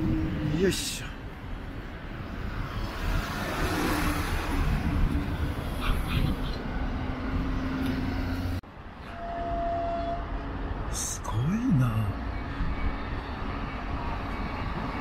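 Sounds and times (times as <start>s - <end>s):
truck and vans driving past: 1.5s - 8.6s.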